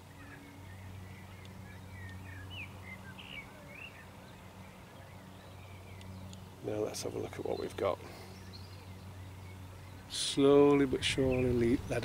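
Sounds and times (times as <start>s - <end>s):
birds chirping: 0.0s - 12.0s
steady low hum: 0.0s - 12.0s.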